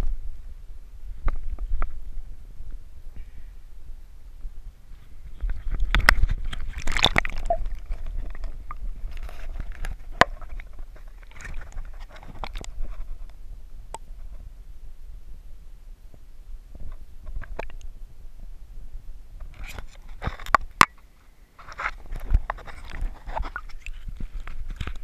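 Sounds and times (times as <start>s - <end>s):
muffled underwater rumble: 0.0s - 20.9s
water sloshing: 5.2s - 13.0s, 22.0s - 25.0s
splashing: 5.3s - 12.7s.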